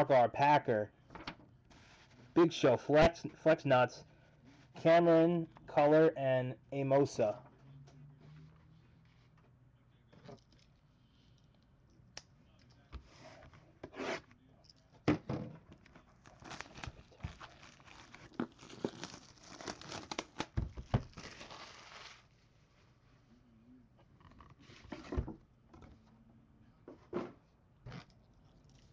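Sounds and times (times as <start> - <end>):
shrink wrap tearing and crinkling: 16.0 - 22.4.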